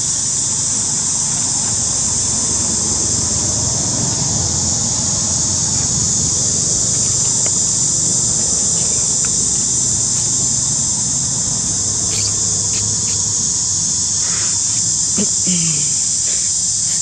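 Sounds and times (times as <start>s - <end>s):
insects droning: 0.0s - 17.0s.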